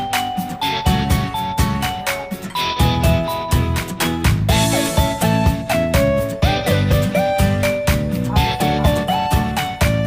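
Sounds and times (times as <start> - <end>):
upbeat instrumental music: 0.0 - 10.0.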